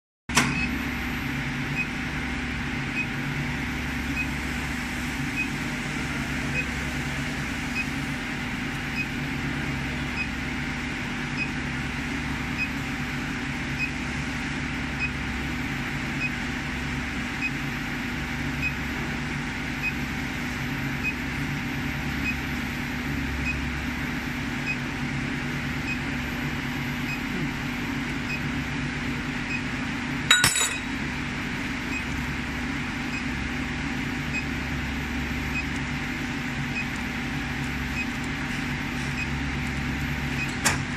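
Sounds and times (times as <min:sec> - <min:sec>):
induction heater electrical hum: 0:00.3 - 0:40.9
sharp metallic clink: 0:30.3 - 0:31.0.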